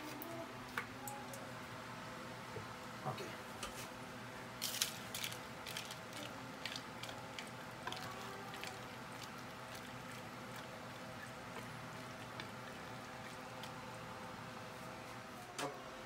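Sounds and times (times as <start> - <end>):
steady low hum: 0.0 - 16.0
water sloshing in a pot: 6.6 - 14.9.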